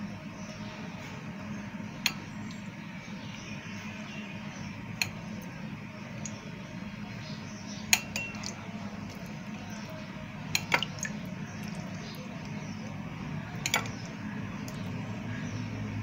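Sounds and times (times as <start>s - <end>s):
metal spoon clinking china bowls: 7.9s - 8.6s, 13.6s - 14.0s.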